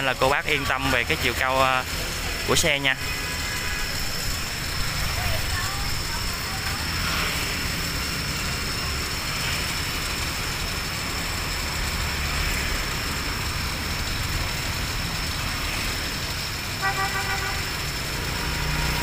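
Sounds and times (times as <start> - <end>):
street traffic rumble: 0.0 - 19.0
vehicle horn beep: 16.8 - 17.9.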